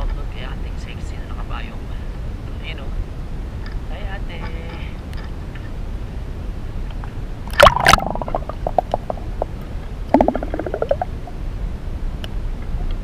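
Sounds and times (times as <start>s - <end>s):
bubbling pulses rising in pitch: 7.5s - 11.2s
underwater gurgling and bubbling: 7.5s - 11.2s.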